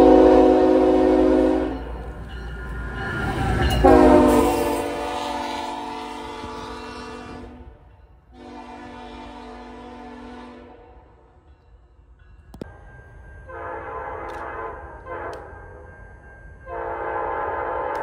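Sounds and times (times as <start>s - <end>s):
locomotive air horn blasts: 0.0s - 1.9s, 3.8s - 11.0s, 13.5s - 15.5s, 16.7s - 18.0s
low rumble of train: 0.0s - 18.0s.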